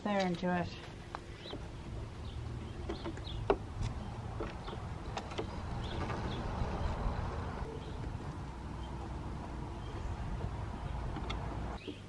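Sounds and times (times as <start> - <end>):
clicks and knocks of knobs: 2.7 - 7.0.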